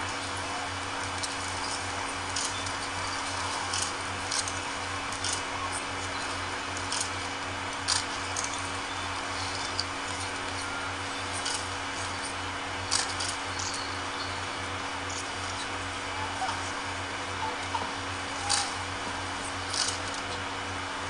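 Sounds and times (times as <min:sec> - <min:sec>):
steady hiss and low hum: 0:00.0 - 0:21.0
clicks and rustles: 0:00.1 - 0:13.9, 0:17.7 - 0:20.5.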